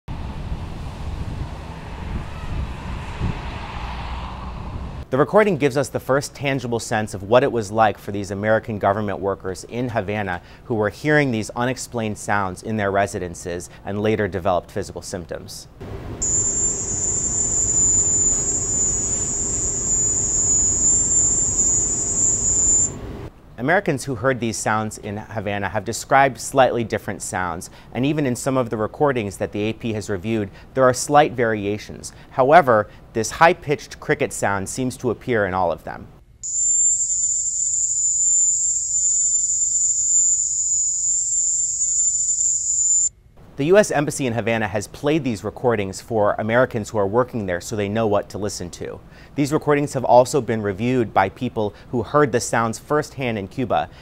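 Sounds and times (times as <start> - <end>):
piercing high-pitched whine: 15.8 - 23.3, 36.4 - 43.1
steady very high tone: 16.2 - 23.2, 36.4 - 43.1.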